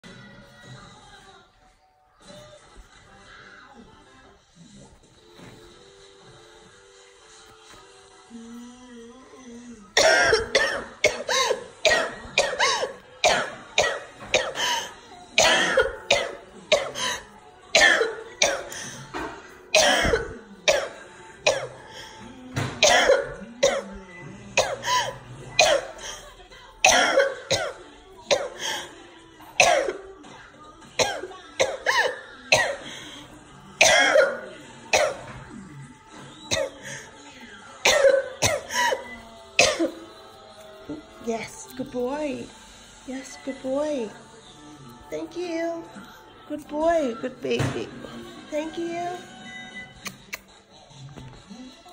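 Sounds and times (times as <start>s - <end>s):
faint cartoon music: 0.0s - 51.9s
woman coughing hard: 10.0s - 21.8s, 22.6s - 24.0s, 24.6s - 28.9s, 29.6s - 30.0s, 31.0s - 32.9s, 33.8s - 35.4s, 36.5s - 37.0s, 37.8s - 40.0s.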